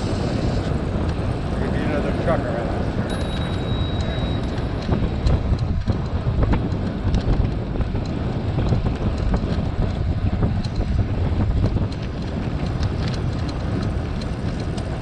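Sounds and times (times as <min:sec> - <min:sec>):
wind buffeting microphone: 0:00.0 - 0:15.0
faint bicycle clicks: 0:00.3 - 0:15.0.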